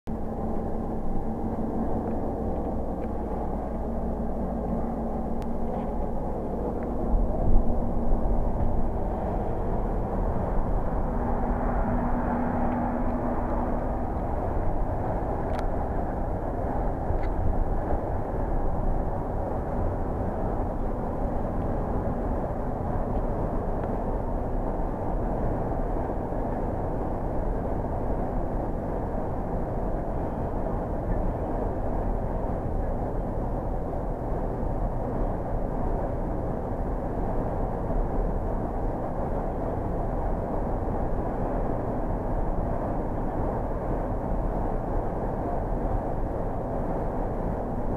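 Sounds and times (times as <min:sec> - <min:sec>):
coach engine and tyres droning: 0:00.1 - 0:47.9.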